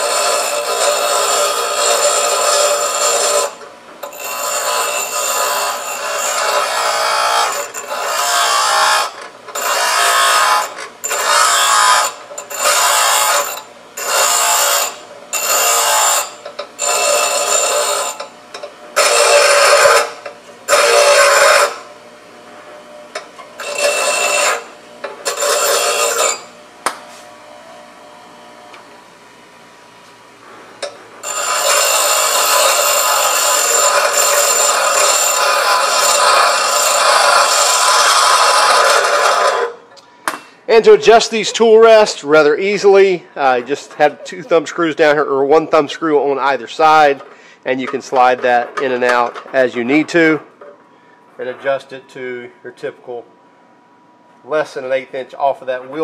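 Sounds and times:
steel rod grinding on wheel: 0:00.0 - 0:21.9, 0:23.1 - 0:26.6, 0:30.8 - 0:39.9
grinder wheel running: 0:00.0 - 0:22.0, 0:22.9 - 0:28.8, 0:30.8 - 0:40.1.

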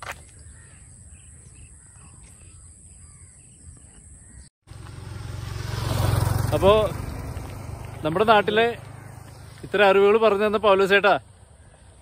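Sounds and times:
crows cawing: 0:03.0 - 0:03.4.

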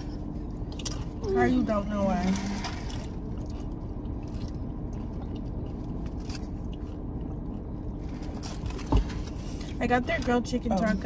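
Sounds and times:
steady low hum: 0:00.0 - 0:11.0
person chewing food: 0:02.8 - 0:08.9.

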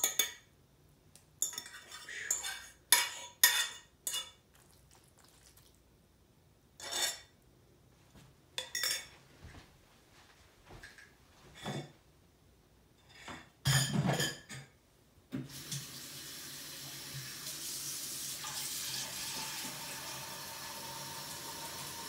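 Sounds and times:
cutlery clinking against dish: 0:00.0 - 0:00.5, 0:01.4 - 0:04.4, 0:08.6 - 0:09.2.

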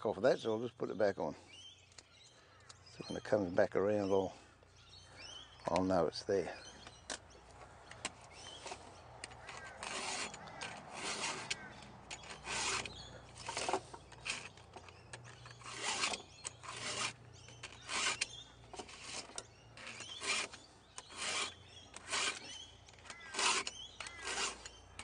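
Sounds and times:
file rasping on chainsaw chain: 0:08.5 - 0:25.0.

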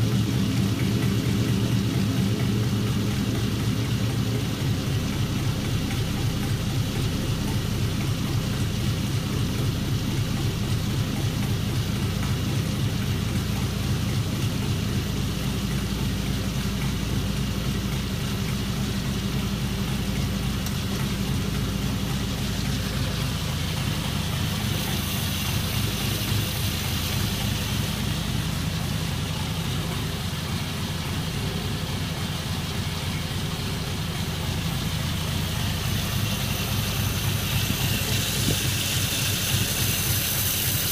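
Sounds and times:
car engine idling: 0:00.0 - 0:40.9
airy hiss: 0:22.1 - 0:29.4, 0:35.4 - 0:40.9.

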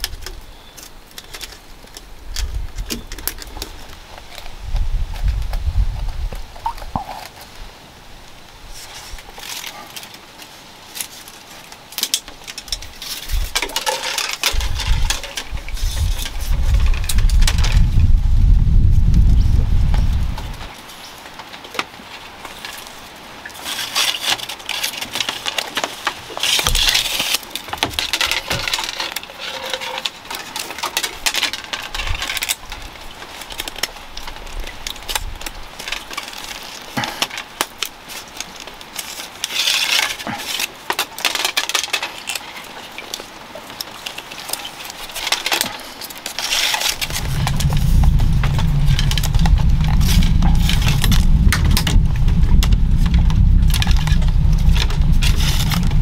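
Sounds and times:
bamboo strips crackling: 0:00.0 - 0:56.0
steady low rumble: 0:47.0 - 0:56.0.

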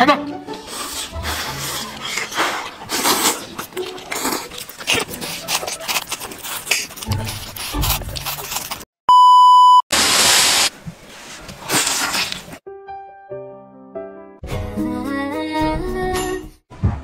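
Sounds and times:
noodles slurped and chewed: 0:00.5 - 0:08.9, 0:11.5 - 0:12.6
test-tone beep: 0:09.1 - 0:09.8.

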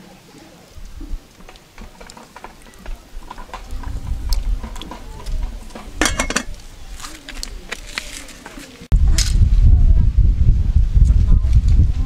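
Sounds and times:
wood fire crackling: 0:00.6 - 0:08.9
pot and lid clattering: 0:04.6 - 0:06.6
low rumble: 0:08.9 - 0:12.0.

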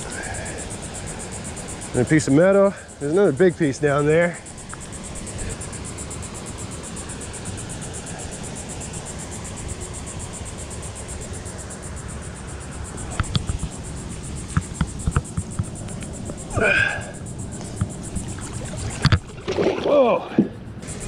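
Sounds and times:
insects chirping: 0:00.0 - 0:21.0
low steady rumble: 0:00.0 - 0:21.0.

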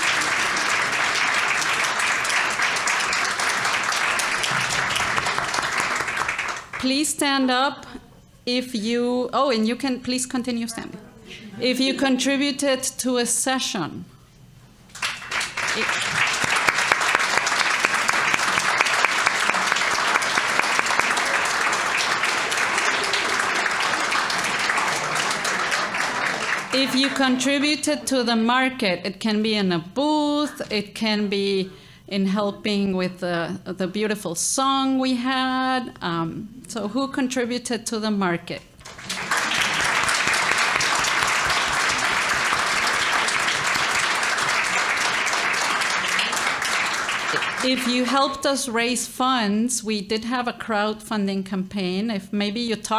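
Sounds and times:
audience applauding: 0:00.0 - 0:06.9, 0:14.9 - 0:27.7, 0:38.8 - 0:48.2.

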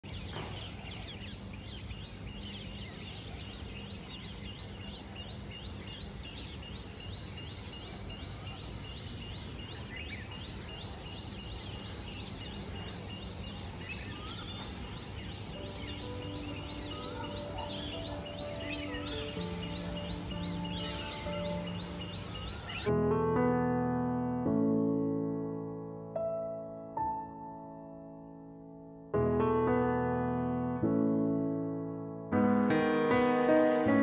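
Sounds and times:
birds chirping: 0:00.0 - 0:22.9
low hum of town noise: 0:00.0 - 0:24.2.

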